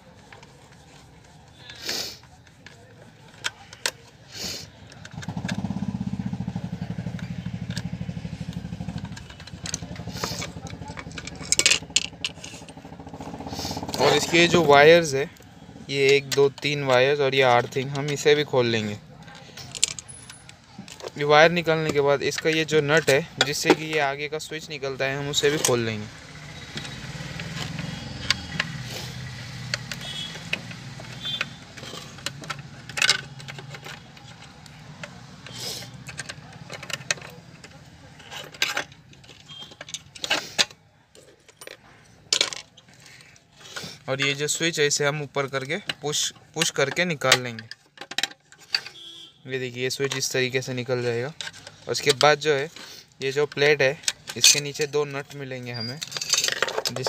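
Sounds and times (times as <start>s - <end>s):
small engine running: 5.2s - 14.6s, 26.0s - 34.0s
sharp metallic clicks: 6.9s - 13.2s, 19.2s - 40.8s.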